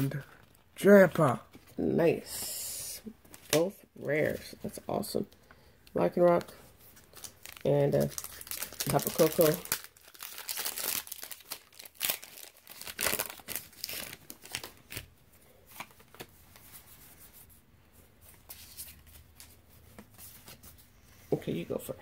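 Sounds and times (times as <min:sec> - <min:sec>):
foil wrapper crinkling and tearing: 0:07.0 - 0:15.1.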